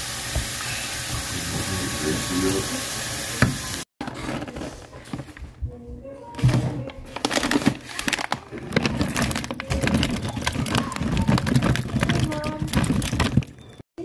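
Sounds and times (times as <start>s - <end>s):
plastic bag crinkling: 7.0s - 13.8s.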